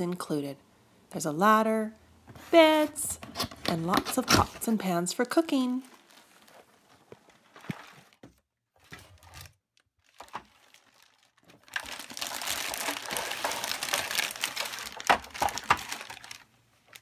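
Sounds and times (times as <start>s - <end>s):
plastic bag crinkling: 5.5s - 8.2s, 8.8s - 17.0s.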